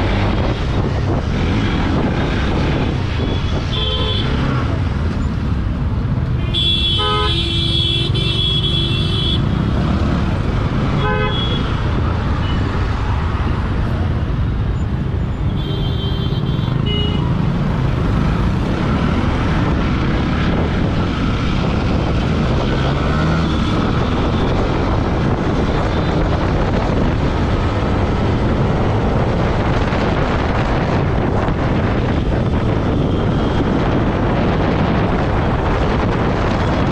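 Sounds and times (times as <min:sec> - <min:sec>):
wind rush on microphone: 0:00.0 - 0:06.4, 0:17.2 - 0:36.9
vehicle horns honking: 0:03.4 - 0:04.5, 0:06.4 - 0:09.5, 0:11.0 - 0:11.8.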